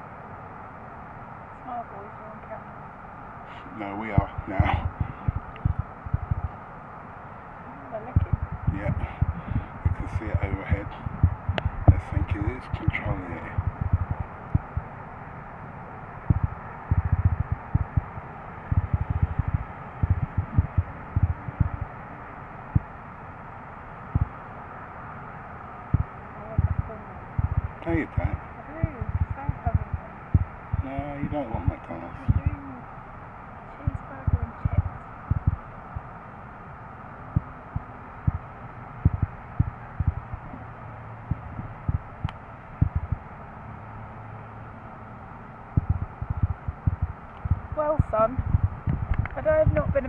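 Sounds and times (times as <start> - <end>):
background hiss: 0.0 - 50.0
wind buffeting microphone: 4.0 - 6.6, 7.9 - 14.9, 16.2 - 22.0, 25.9 - 32.7, 33.8 - 36.1, 45.8 - 50.0
low thumps: 4.2 - 6.6, 8.2 - 14.9, 16.3 - 21.9, 24.1 - 24.3, 25.9 - 28.3, 28.9 - 32.6, 34.2 - 36.1, 37.3 - 40.6, 41.2 - 43.3, 45.8 - 50.0.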